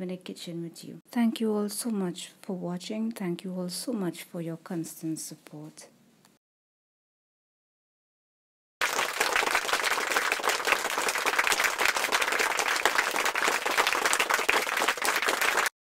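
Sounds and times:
crowd applause: 8.8s - 15.7s.

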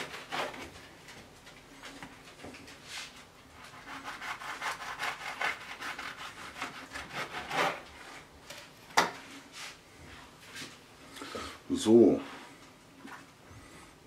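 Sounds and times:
knife sawing through pastry: 0.0s - 0.7s, 3.6s - 8.3s.

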